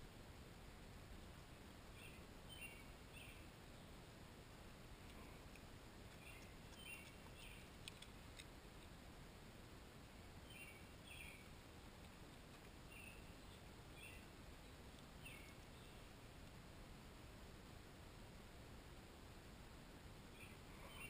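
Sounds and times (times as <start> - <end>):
faint bird chirps: 1.9 - 4.0, 6.1 - 7.8, 10.4 - 11.6, 12.8 - 16.1, 20.3 - 21.0
faint clicks: 5.0 - 9.0, 14.8 - 15.8.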